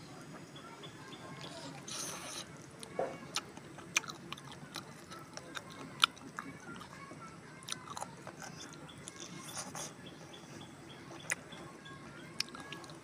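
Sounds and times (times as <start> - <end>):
person chewing food: 1.8 - 7.0, 7.6 - 10.0, 11.2 - 11.5, 12.4 - 13.0.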